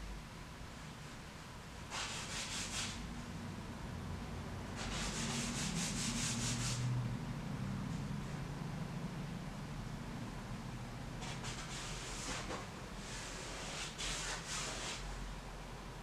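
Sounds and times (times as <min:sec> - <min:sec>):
paintbrush scrubbing on canvas: 0:01.9 - 0:03.0, 0:04.8 - 0:06.8, 0:11.2 - 0:15.0.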